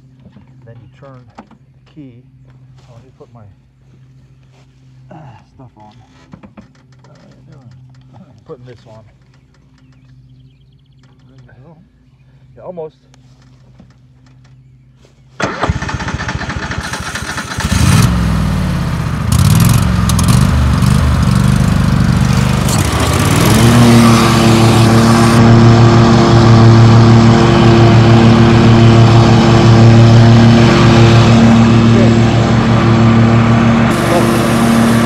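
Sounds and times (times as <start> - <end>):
electric starter cranking: 15.4 - 25.4, 33.9 - 35.0
lawn mower engine running: 15.4 - 35.0.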